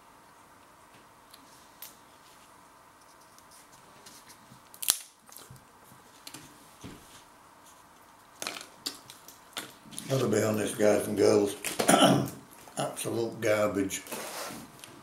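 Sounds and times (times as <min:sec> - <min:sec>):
small crackles of crisp: 0:02.2 - 0:06.5
crisp snapping crack: 0:04.7 - 0:05.5.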